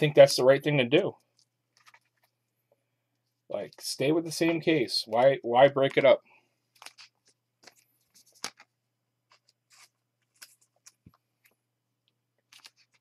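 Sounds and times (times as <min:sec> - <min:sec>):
cards clicking and rustling: 0:01.2 - 0:02.4, 0:06.7 - 0:11.6, 0:12.4 - 0:13.0.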